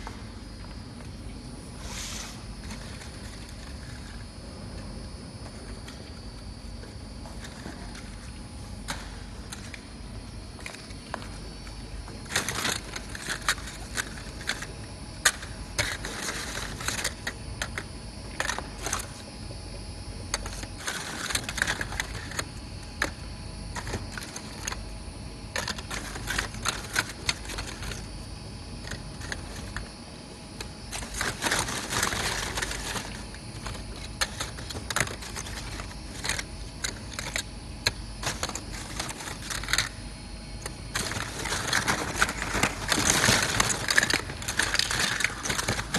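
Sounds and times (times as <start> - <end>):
plastic lids clattering: 30.9 - 40.0, 40.6 - 45.9.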